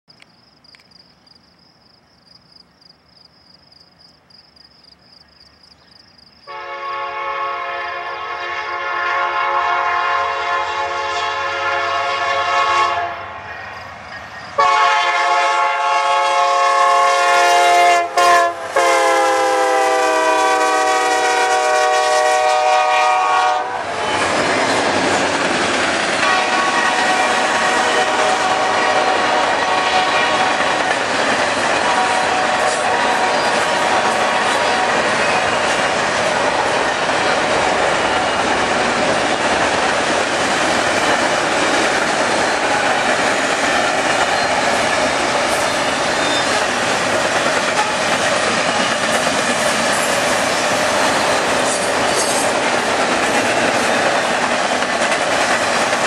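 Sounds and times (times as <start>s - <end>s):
insects chirring: 0.1s - 6.6s, 13.4s - 14.6s
train cars rolling by: 5.5s - 56.0s
locomotive air horn blasts: 6.5s - 13.3s, 14.6s - 24.0s, 26.2s - 30.6s, 31.8s - 35.6s, 47.8s - 48.1s.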